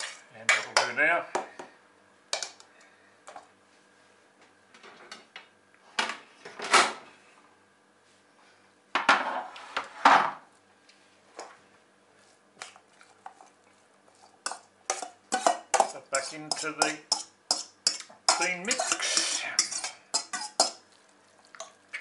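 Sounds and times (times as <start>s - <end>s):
fork scraping metal bowl: 14.1s - 20.8s.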